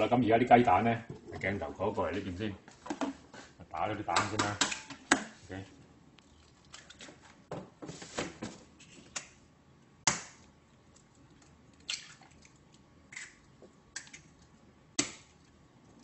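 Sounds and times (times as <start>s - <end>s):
eggshells cracking: 10.9s - 15.4s.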